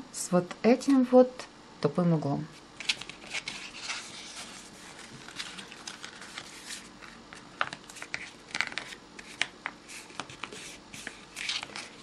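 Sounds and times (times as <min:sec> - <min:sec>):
paper rustling and crackling: 0:02.8 - 0:12.0.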